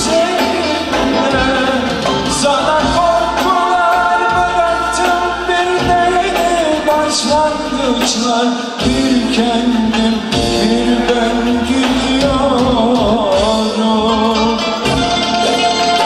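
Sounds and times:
man singing: 0.0s - 16.0s
rhythmic low accompaniment: 0.0s - 16.0s
clarinet: 13.9s - 16.0s.

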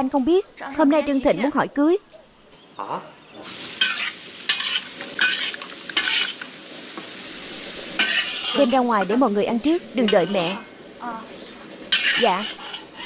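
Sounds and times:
food sizzling in a wok: 3.4s - 13.0s
metal spatula scraping a wok: 3.5s - 6.4s, 7.8s - 8.8s, 11.9s - 13.0s.

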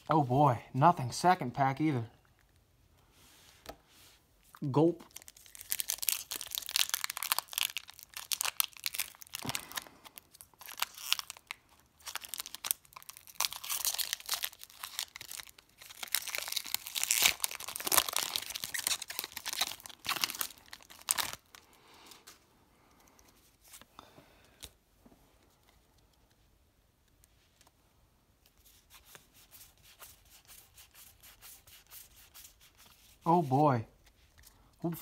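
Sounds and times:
foil wrapper crinkling and tearing: 5.0s - 22.4s.

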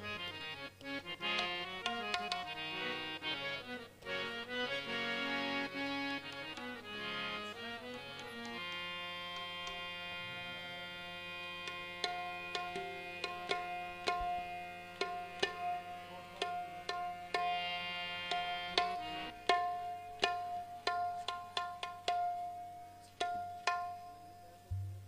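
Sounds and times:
harmonium chord: 0.0s - 24.7s
tabla strokes: 1.2s - 2.9s, 11.6s - 25.0s.

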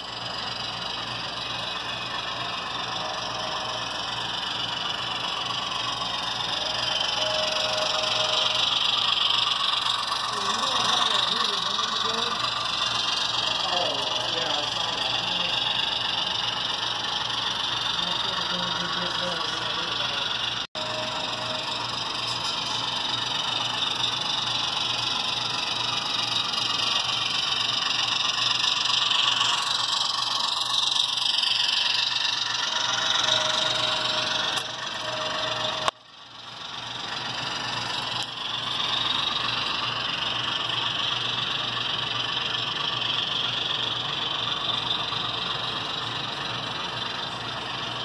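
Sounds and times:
model train motor whine: 0.0s - 48.0s
model train wheels clattering: 0.3s - 20.6s.

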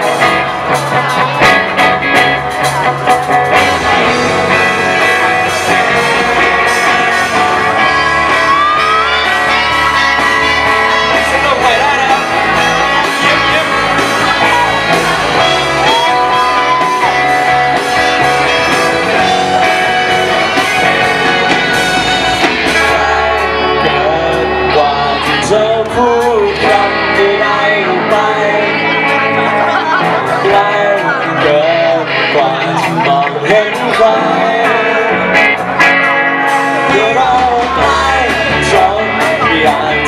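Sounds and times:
bass guitar: 0.0s - 40.0s
drums: 0.0s - 40.0s
electric guitars: 0.0s - 40.0s
keyboard: 0.0s - 40.0s
saxophone and trumpet: 15.4s - 25.3s
man singing through a pa: 22.8s - 29.1s, 30.2s - 35.4s, 36.8s - 40.0s.

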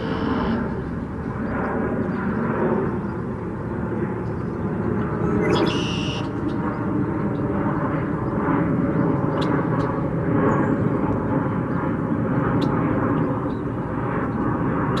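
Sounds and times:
distant engine rumble: 0.0s - 12.2s.

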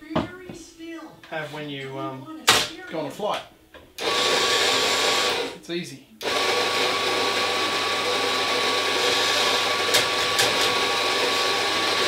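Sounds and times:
coffee grinder motor running: 4.0s - 5.6s, 6.2s - 12.0s.

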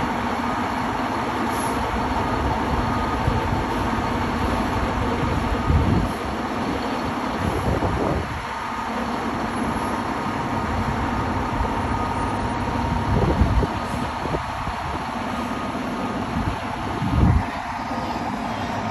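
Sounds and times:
wind buffeting microphone: 4.8s - 6.3s, 7.4s - 8.5s, 12.8s - 15.1s, 16.3s - 17.5s.

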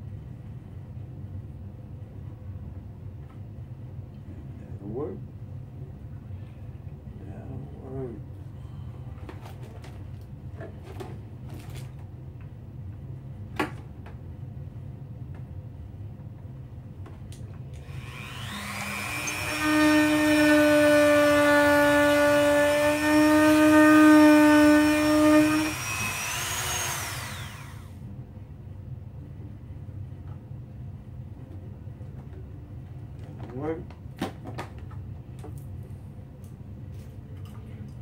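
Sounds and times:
rotary tool whining: 17.8s - 28.0s.

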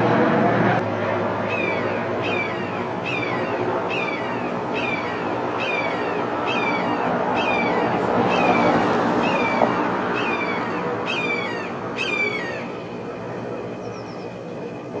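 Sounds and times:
hawk calling: 1.5s - 9.6s, 10.2s - 12.7s.

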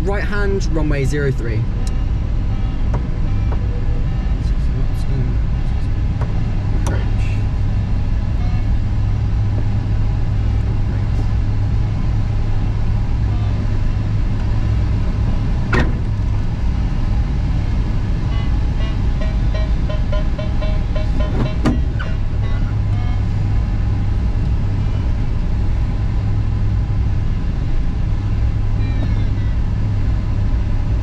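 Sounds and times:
airflow rushing around cockpit: 0.0s - 31.0s
short repeated beeps: 1.8s - 4.5s, 8.4s - 8.8s, 18.3s - 23.3s.

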